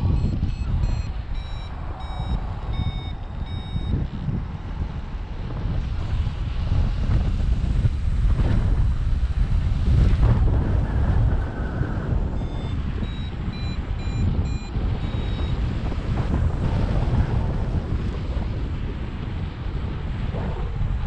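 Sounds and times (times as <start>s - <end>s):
short high beeps: 0.0s - 4.1s, 12.4s - 15.6s
wind buffeting microphone: 0.0s - 21.0s.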